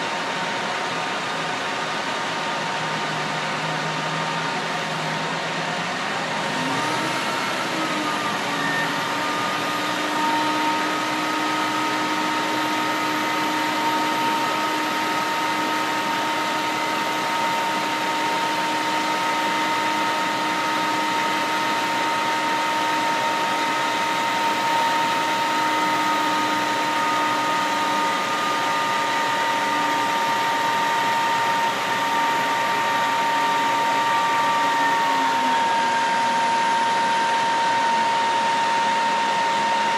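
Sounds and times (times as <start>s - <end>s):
rising mechanical whine: 0.0s - 39.9s
truck engine and hydraulics droning: 0.0s - 39.9s.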